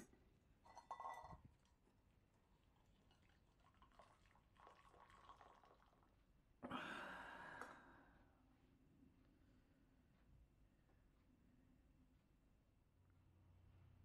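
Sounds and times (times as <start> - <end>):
water pouring into metal mug: 2.6 - 6.2.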